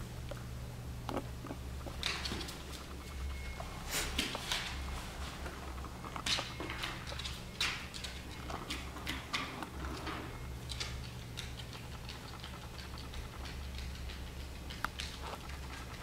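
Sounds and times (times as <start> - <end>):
dog claws clicking on wooden floor: 1.1 - 3.2, 5.7 - 16.0.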